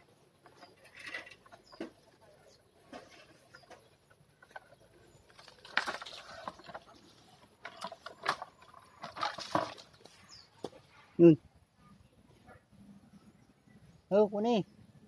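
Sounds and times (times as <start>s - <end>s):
leaves and twigs rustling: 0.4s - 11.0s.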